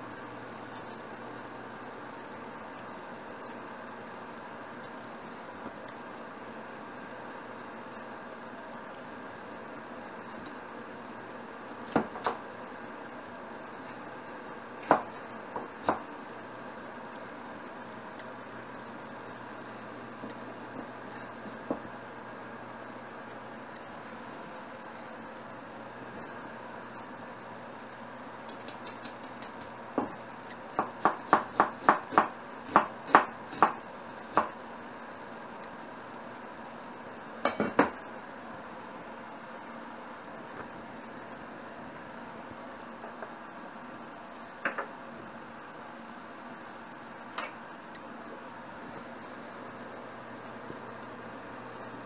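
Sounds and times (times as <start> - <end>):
knife chopping on wooden board: 30.7 - 34.5.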